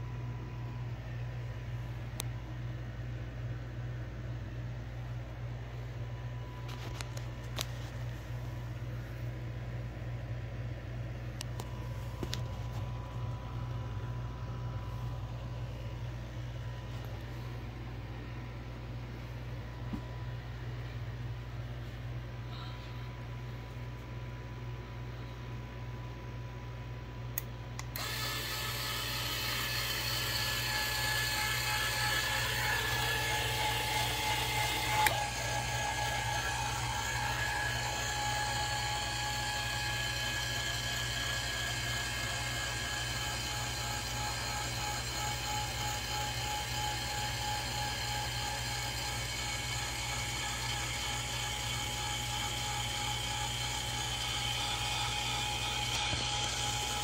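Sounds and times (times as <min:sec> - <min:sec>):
actuator motor whining: 0:27.8 - 0:57.0.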